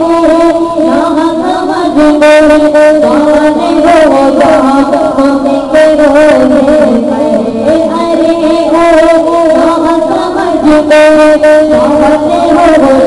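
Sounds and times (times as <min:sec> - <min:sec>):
men chanting devotional song: 0:00.0 - 0:13.0.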